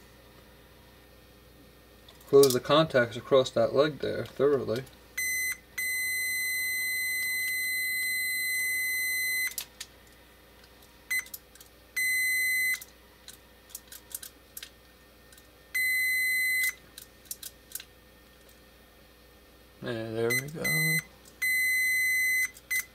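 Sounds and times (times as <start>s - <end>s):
multimeter continuity beeps: 5.2s - 9.6s, 11.1s - 11.3s, 12.0s - 12.9s, 15.8s - 16.8s, 20.3s - 22.9s.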